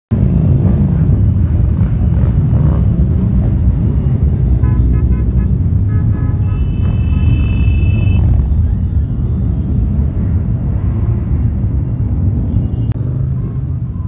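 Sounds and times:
motorcycle engines rumbling: 0.1s - 14.0s
motorcycle horn toots: 4.6s - 8.3s.

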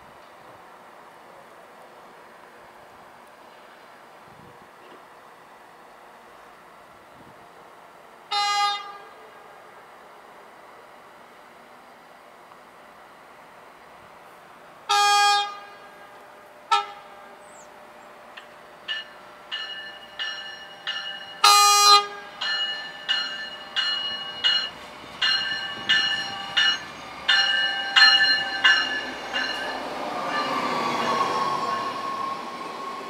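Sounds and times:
train rumble: 0.0s - 33.0s
train horn blasts: 8.3s - 9.9s, 14.9s - 17.4s, 21.4s - 22.4s
train bell ringing: 18.4s - 33.0s.

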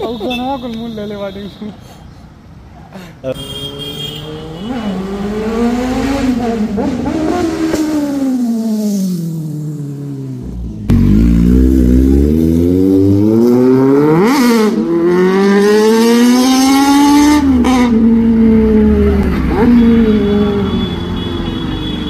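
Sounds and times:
motorcycle engine revving: 3.5s - 21.0s.

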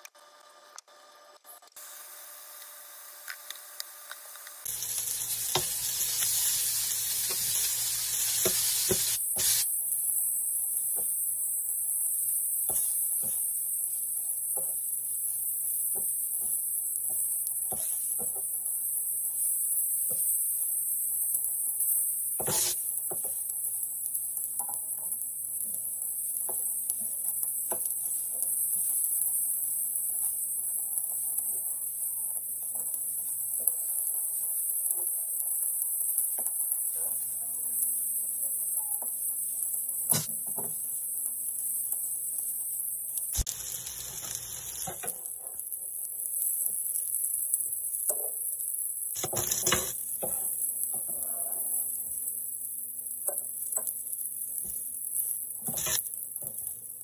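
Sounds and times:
meat sizzling on a griddle: 1.8s - 57.0s
spatula and tongs scraping griddle: 21.8s - 23.4s, 49.2s - 52.0s, 54.6s - 56.7s.

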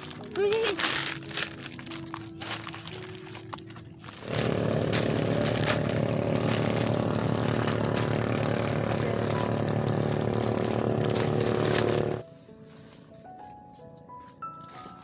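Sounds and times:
plastic bags rustling: 0.0s - 13.2s
loud motor drone: 4.1s - 12.2s.

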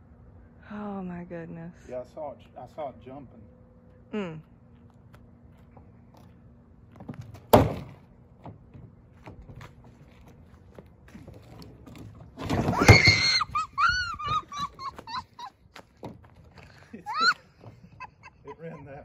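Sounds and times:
trash can hitting concrete: 7.0s - 8.0s
high whining animal cries: 12.7s - 15.2s.

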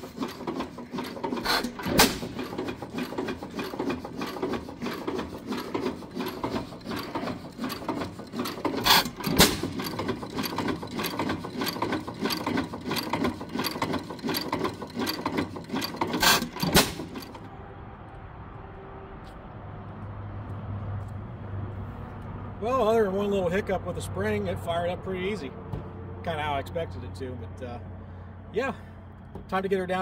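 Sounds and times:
engine firing bangs: 0.0s - 12.6s, 15.2s - 17.5s
engine mechanism ticking: 0.0s - 17.5s
outdoor background: 0.0s - 30.0s.

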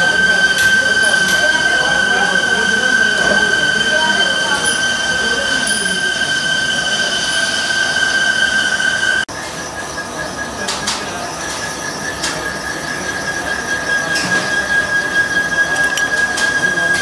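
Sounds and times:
milling cutter whining on metal: 11.8s - 17.0s.

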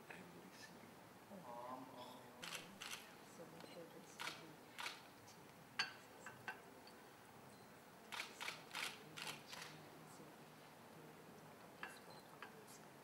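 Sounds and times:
camera shutter clicks: 2.4s - 3.1s, 4.2s - 5.0s, 8.1s - 9.8s.

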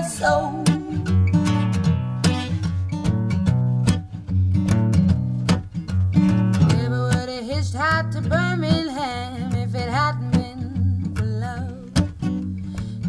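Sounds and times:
wavering melody line: 0.0s - 1.3s
acoustic country song: 0.0s - 13.0s
strummed acoustic guitar: 0.0s - 13.0s.

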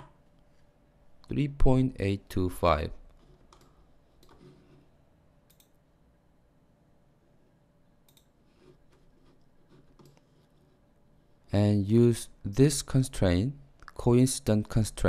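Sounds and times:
computer mouse clicks: 3.2s - 4.6s, 5.4s - 5.8s, 8.0s - 10.7s.

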